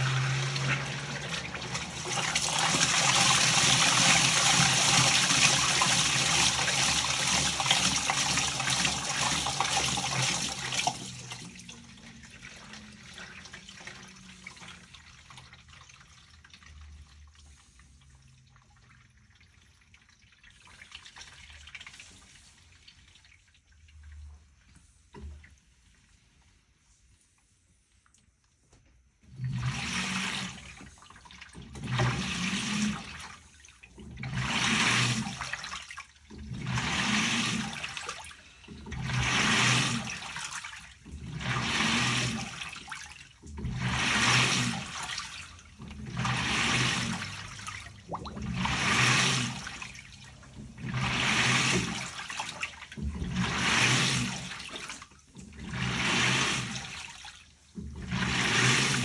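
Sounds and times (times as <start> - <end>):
low motor hum: 0.0 - 3.5, 29.2 - 31.0, 31.6 - 33.2, 36.3 - 37.9, 38.6 - 40.3, 41.0 - 42.8, 43.4 - 57.1, 57.7 - 59.0
water swishing in washer: 0.0 - 59.0.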